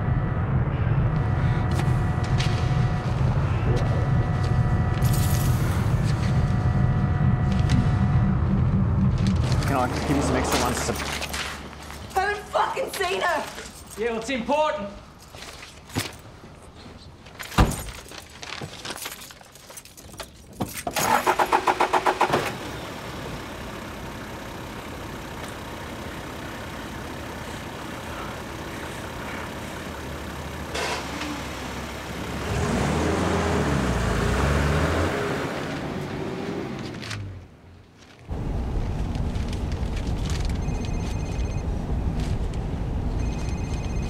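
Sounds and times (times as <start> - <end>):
car engine idling and revving: 0.0 - 12.5, 20.9 - 44.0
car engine cranking: 1.7 - 12.4, 19.6 - 22.8.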